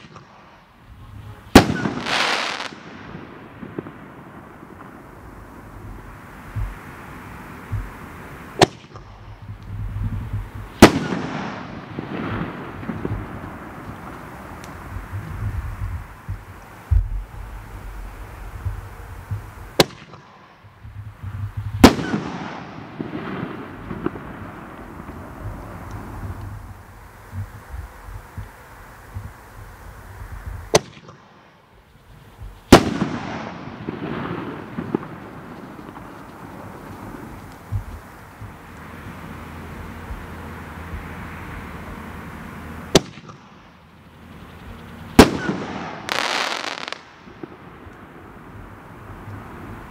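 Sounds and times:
firework bangs with rumbling echo: 0.9 - 7.0, 7.7 - 14.2, 17.9 - 26.7, 30.4 - 31.3, 32.4 - 38.5, 42.9 - 43.5, 45.2 - 48.6
firework thumps: 5.8 - 7.0, 7.6 - 14.2, 14.9 - 17.4, 32.4 - 38.6.

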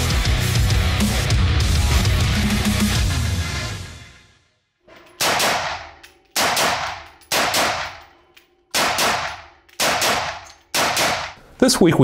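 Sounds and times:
rifle shots echoing indoors: 5.0 - 11.4.

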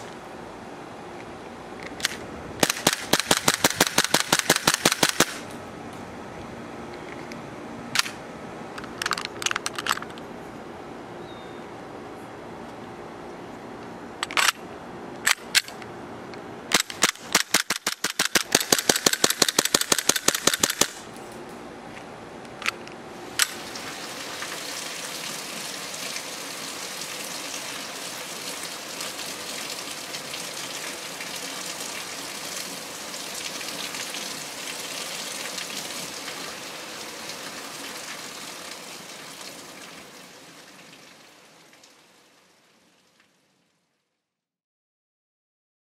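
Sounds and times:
airsoft pistol shots: 2.6 - 5.4, 16.7 - 21.0.

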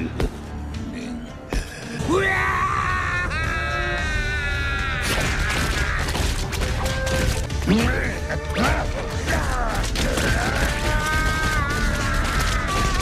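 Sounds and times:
dramatic background music: 0.0 - 13.0
rapid punches and impacts: 9.3 - 13.0.

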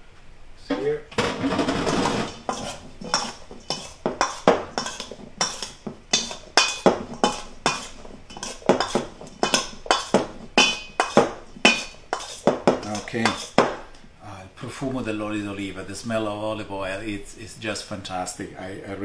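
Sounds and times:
metal mixing bowl clinking: 1.2 - 13.8.

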